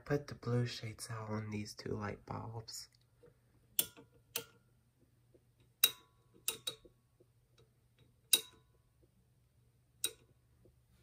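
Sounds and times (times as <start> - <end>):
metal lamp shades clicking: 3.7 - 4.7, 5.6 - 8.8, 10.0 - 10.4.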